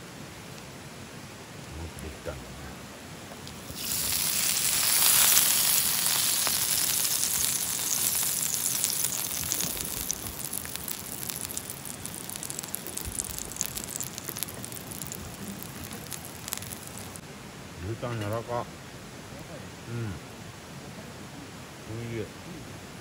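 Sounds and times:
food sizzling in a frying pan: 3.4 - 17.2.

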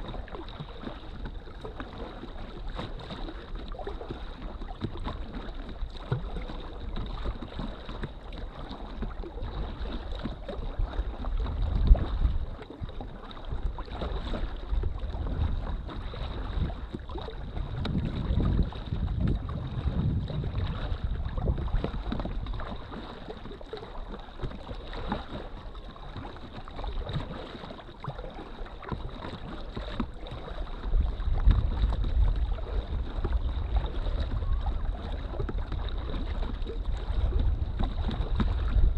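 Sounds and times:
water lapping against kayak hull: 0.0 - 38.9
wind buffeting microphone: 9.4 - 23.8, 29.3 - 38.9.

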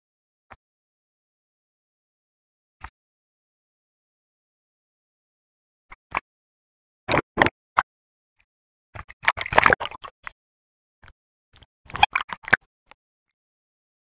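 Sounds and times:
water splashing and bubbling: 7.1 - 7.6, 9.0 - 10.4, 11.6 - 12.7.

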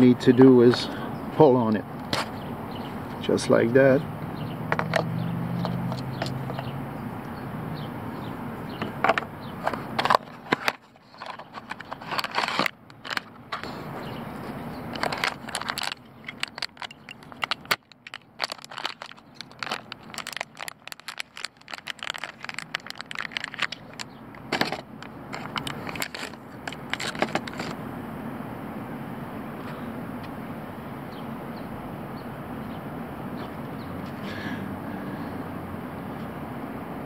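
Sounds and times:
plastic packaging crinkling: 10.0 - 13.3, 14.9 - 27.8.

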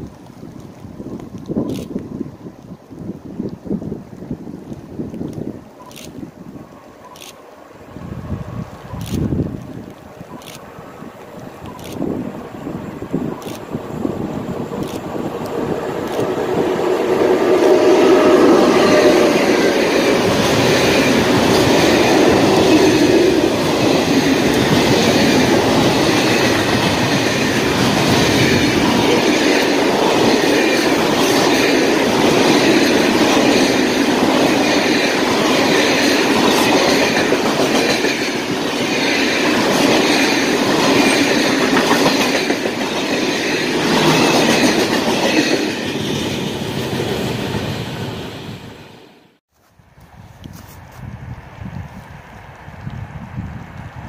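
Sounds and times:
freight train rolling past: 6.6 - 49.4.

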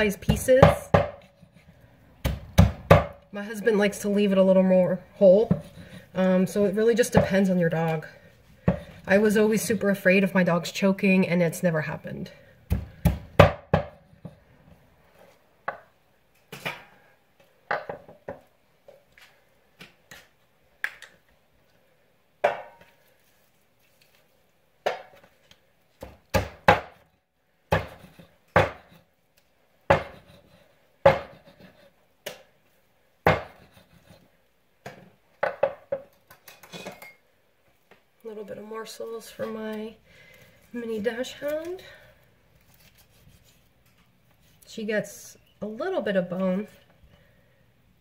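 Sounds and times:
hatchet chopping chicken on wood: 29.9 - 30.3, 31.0 - 31.4.

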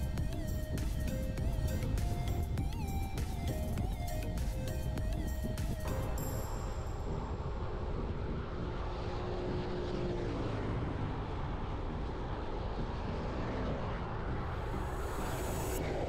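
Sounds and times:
wind on microphone: 0.0 - 9.8
vehicle engine and road noise: 0.0 - 16.0.

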